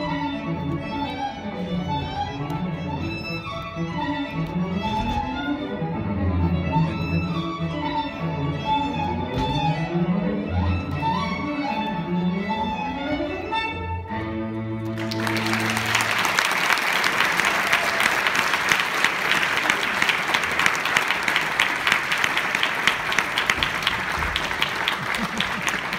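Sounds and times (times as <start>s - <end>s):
audience applauding: 14.9s - 25.9s.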